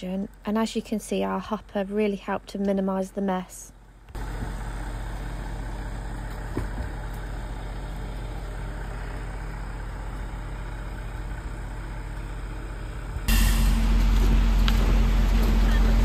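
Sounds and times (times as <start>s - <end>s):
truck engine droning: 3.9s - 16.0s.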